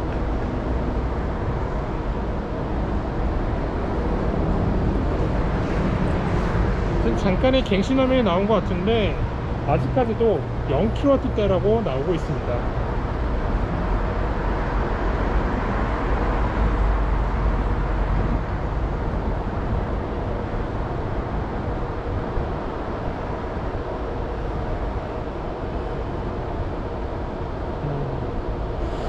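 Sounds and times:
road traffic rumble: 0:00.0 - 0:29.0
faint hum: 0:27.7 - 0:29.0.

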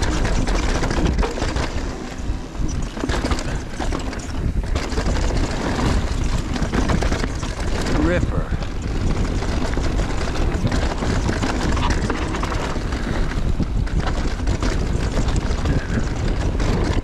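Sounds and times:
bike rattling over bumps: 0:00.0 - 0:17.0
wind rushing over microphone: 0:00.0 - 0:17.0.

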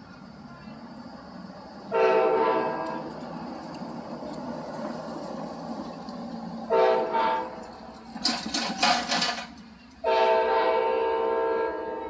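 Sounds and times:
locomotive air horn blasts: 0:01.9 - 0:03.0, 0:06.7 - 0:07.6, 0:10.0 - 0:12.0.

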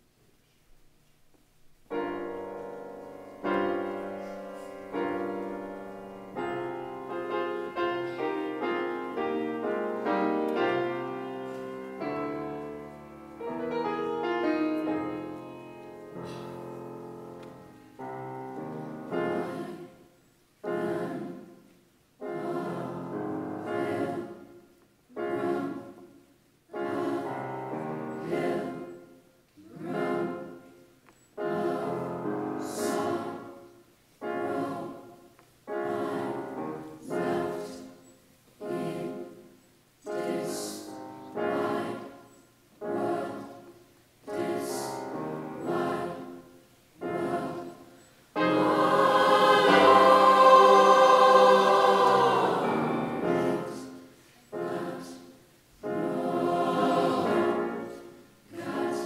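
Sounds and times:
grand piano chords: 0:01.7 - 0:59.0
youth choir singing: 0:18.9 - 0:59.0.

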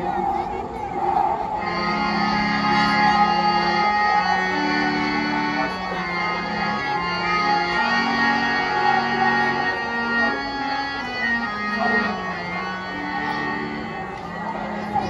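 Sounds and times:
organ keyboard melody: 0:01.4 - 0:15.0.

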